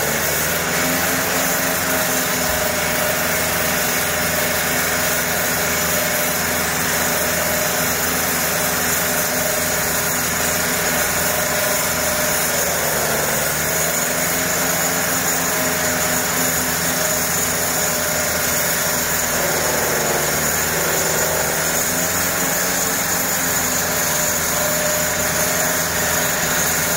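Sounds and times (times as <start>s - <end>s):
concrete saw cutting: 0.0s - 26.9s.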